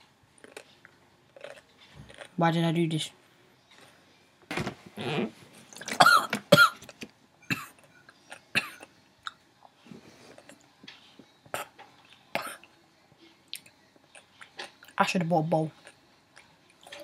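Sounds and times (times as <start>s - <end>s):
boy coughing: 5.9s - 6.8s.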